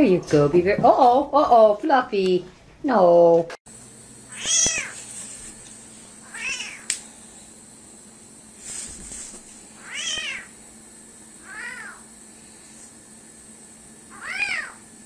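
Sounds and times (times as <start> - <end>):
kitten meowing: 4.3 - 5.0, 6.3 - 6.9, 9.8 - 10.5, 11.4 - 12.0, 14.1 - 14.8.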